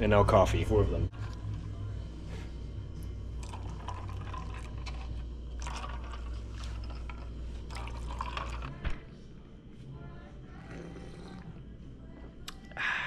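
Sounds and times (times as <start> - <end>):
steady low hum: 0.0 - 13.0
liquid pouring into glass: 3.0 - 9.0.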